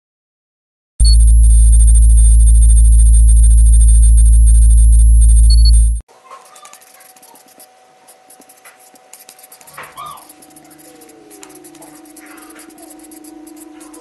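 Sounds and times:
steady hum: 1.0 - 6.0
animal whining cries: 6.2 - 14.0
marker squeaking on paper: 6.3 - 14.0.

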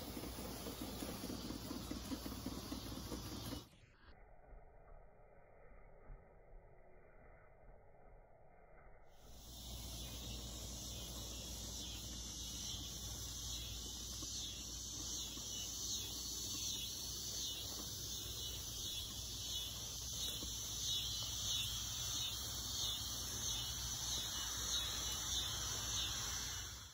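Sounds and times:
toy steam engine chuffing: 0.0 - 3.7.

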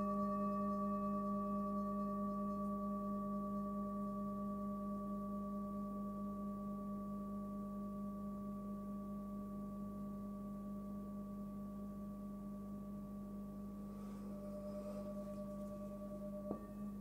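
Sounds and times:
singing bowl ringing: 0.0 - 17.0.

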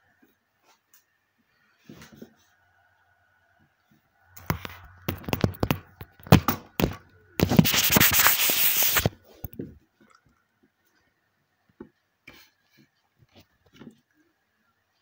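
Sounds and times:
rough rubbing noise: 4.4 - 9.2.

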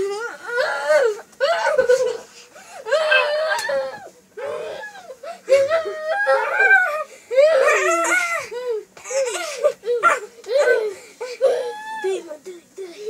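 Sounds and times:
children laughing and squealing: 0.6 - 12.2.

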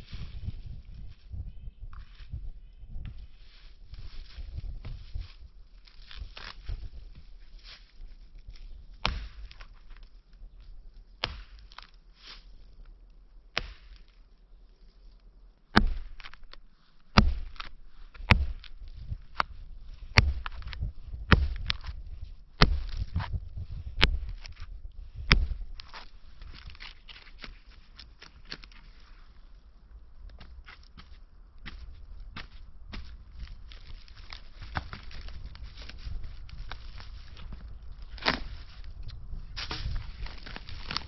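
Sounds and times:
hatchet chopping log: 9.0 - 9.6, 11.2 - 11.9, 13.6 - 14.1, 15.8 - 16.6, 17.2 - 19.5, 20.1 - 21.9, 22.6 - 23.2, 24.0 - 24.6, 25.3 - 25.7
dry leaves rustling: 30.4 - 41.0.

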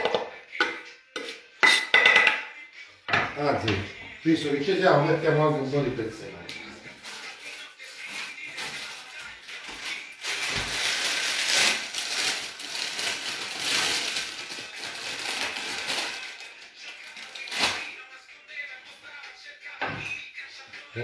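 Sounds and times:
parsley rustling and crinkling: 6.9 - 17.9.

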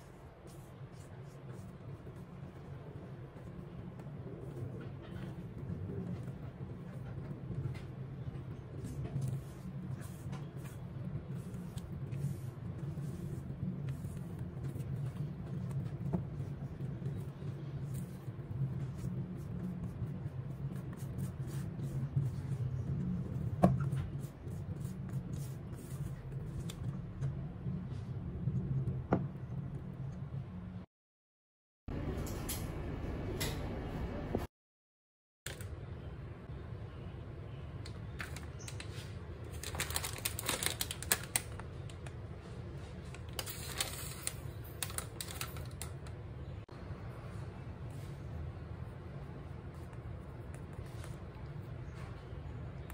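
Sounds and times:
plastic pouch crackling: 39.5 - 41.6.

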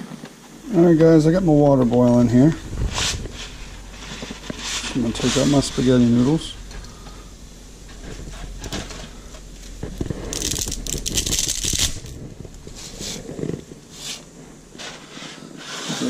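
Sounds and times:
dry spaghetti snapping: 9.6 - 12.7.

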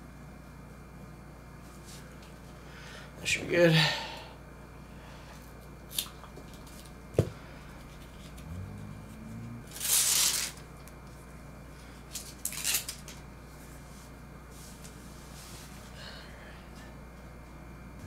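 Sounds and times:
velcro rasping rustle: 9.7 - 10.6, 12.1 - 13.2.

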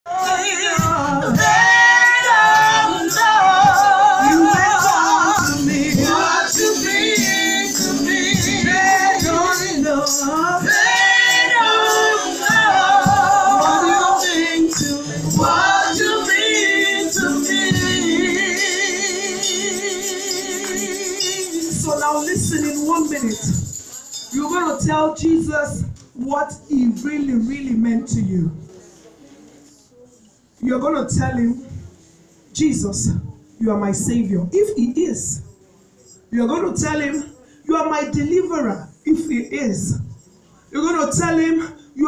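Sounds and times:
amplified worship singing: 0.1 - 22.6.

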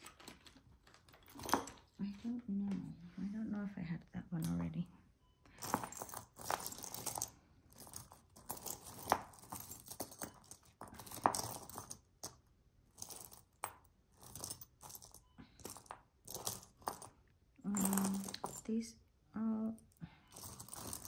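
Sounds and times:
jewelry pieces clicking together: 5.6 - 12.4, 13.0 - 17.1, 17.7 - 18.7, 19.8 - 21.0.

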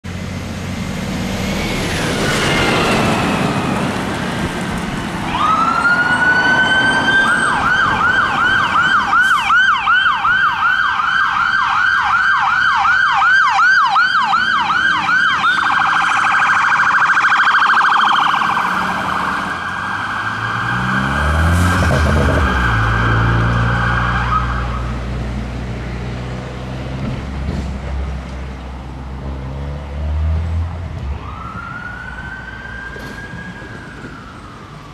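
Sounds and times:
diesel engine pulling away: 0.1 - 10.0, 16.8 - 34.9
fire engine siren yelping and warbling: 1.4 - 25.2, 30.9 - 34.9.

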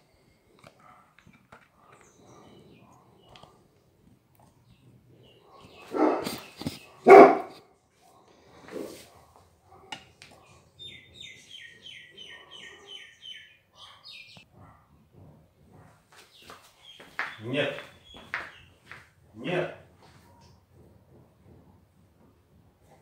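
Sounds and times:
dog barking: 0.8 - 1.2, 5.4 - 7.6, 8.7 - 10.6, 12.2 - 13.1, 13.7 - 15.0
bird chirping: 1.8 - 3.6, 4.5 - 7.5, 10.4 - 14.5, 16.3 - 18.9.

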